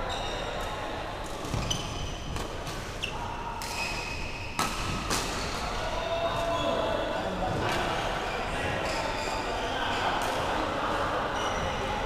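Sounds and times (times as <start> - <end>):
shoes squeaking on court: 1.3 - 4.5.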